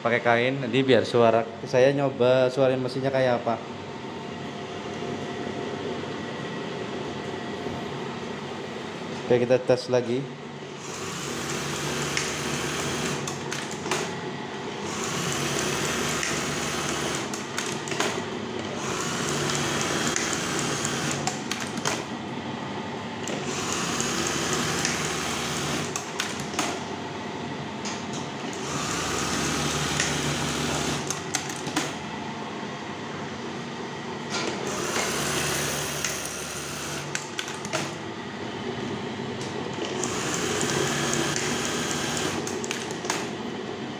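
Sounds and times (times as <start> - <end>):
sewing machine running: 10.8 - 14.1, 14.8 - 22.1, 23.3 - 26.7, 28.4 - 32.0, 34.6 - 38.0, 39.8 - 43.3.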